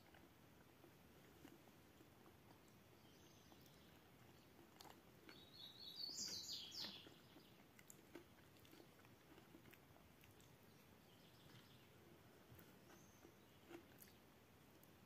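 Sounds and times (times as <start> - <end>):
chewing: 0.0 - 15.0
bird chirping: 2.5 - 4.6, 5.2 - 7.7, 10.6 - 14.3.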